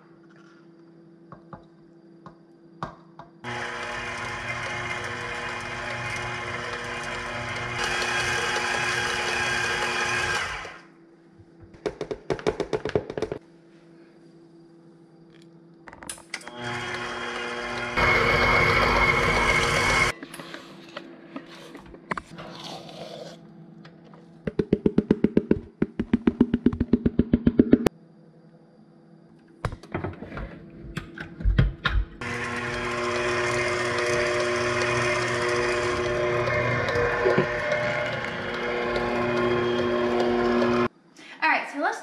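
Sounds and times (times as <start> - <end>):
stand mixer motor running: 3.4 - 10.9, 16.5 - 20.1, 32.2 - 40.9
scraping sounds: 20.1 - 23.4.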